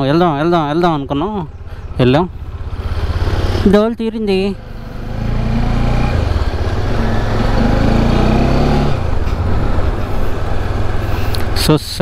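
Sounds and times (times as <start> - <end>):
motorcycle engine accelerating: 0.0 - 11.8.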